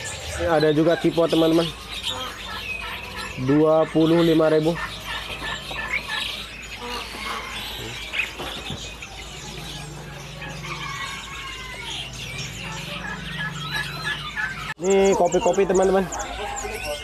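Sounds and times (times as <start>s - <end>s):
songbirds chirping: 0.0s - 17.0s.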